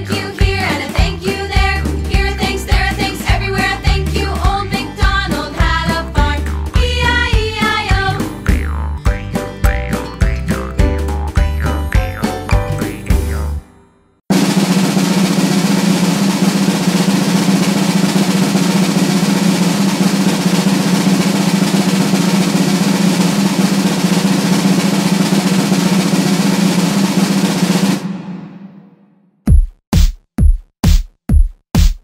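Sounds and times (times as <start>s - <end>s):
snare drum roll: 0.0s - 8.6s, 14.3s - 29.2s
sharp loud drum beat: 0.0s - 8.8s, 14.3s - 32.0s.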